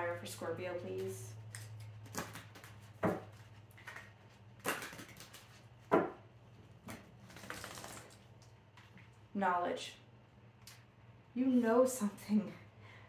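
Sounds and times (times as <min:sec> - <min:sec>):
low steady hum: 0:00.0 - 0:13.0
card snaps and slaps: 0:04.6 - 0:05.5.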